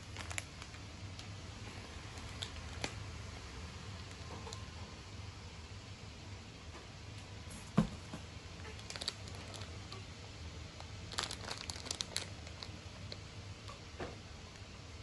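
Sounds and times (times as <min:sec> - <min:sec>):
cardboard rustling and crinkling: 0:11.1 - 0:12.8.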